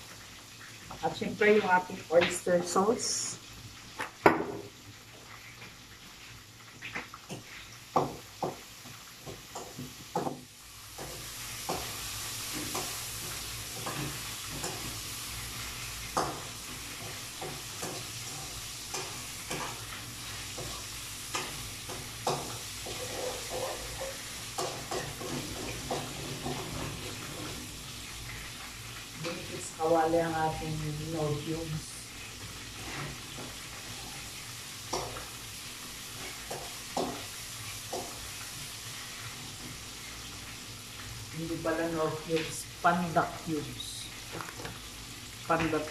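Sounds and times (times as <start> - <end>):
food sizzling in a wok: 0.0 - 45.9.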